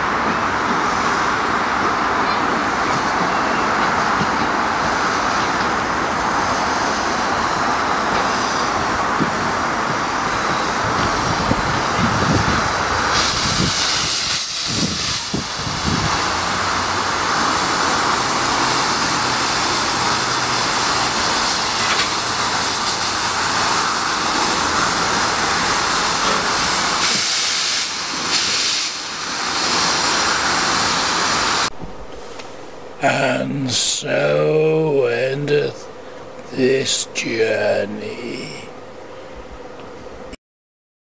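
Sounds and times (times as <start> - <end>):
steam locomotive hissing: 0.0 - 32.4.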